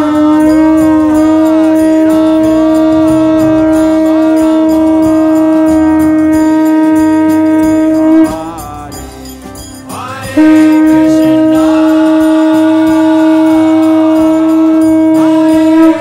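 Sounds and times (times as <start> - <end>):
conch shell blown: 0.0 - 16.0.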